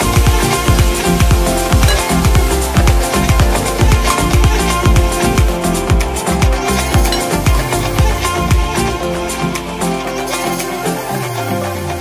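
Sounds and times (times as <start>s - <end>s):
electronic dance music: 0.0s - 12.0s
deep bass drum hits: 0.1s - 8.7s.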